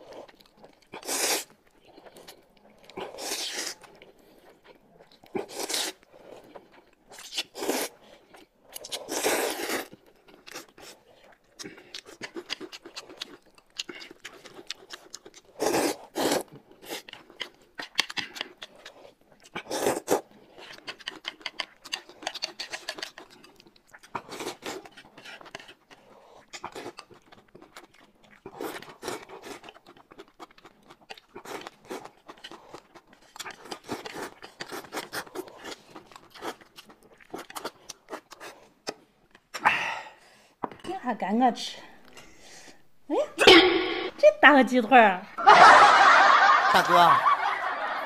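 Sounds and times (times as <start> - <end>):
noodles slurped and chewed: 0.0 - 40.9
wet mouth clicks: 11.6 - 27.1.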